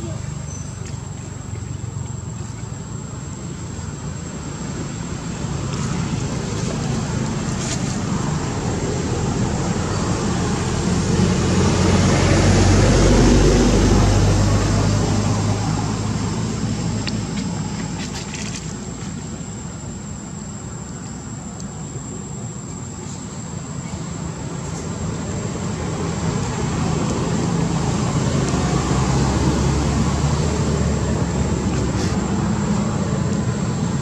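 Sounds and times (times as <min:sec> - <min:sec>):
vehicle engine passing by: 0:05.1 - 0:18.6, 0:25.5 - 0:34.0.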